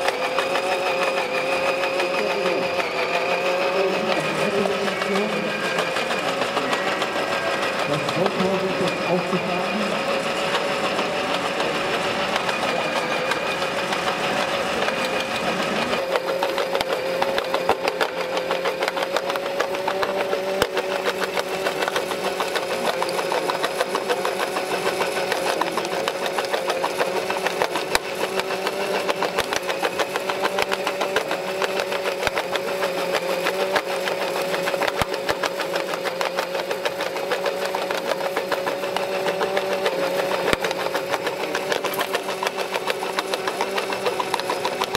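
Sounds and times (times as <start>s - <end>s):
electric motors whining: 0.0s - 44.9s
stones rattling on grate: 0.0s - 44.9s.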